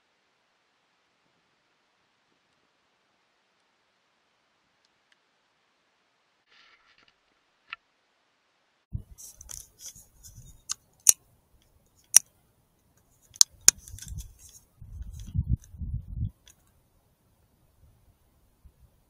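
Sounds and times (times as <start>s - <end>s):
rubbing and handling noise: 9.0s - 11.2s, 13.1s - 15.4s.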